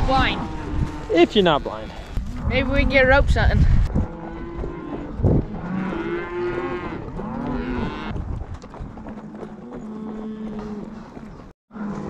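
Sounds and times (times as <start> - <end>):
cattle mooing: 0.0 - 3.1, 4.0 - 8.1, 9.5 - 11.2.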